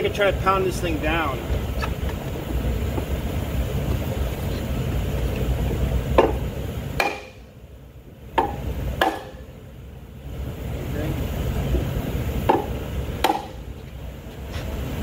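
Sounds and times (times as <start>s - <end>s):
low rumble: 0.0s - 15.0s
hammer knocking on wooden block: 6.2s - 6.4s, 7.0s - 7.3s, 8.4s - 9.3s, 12.5s - 13.5s.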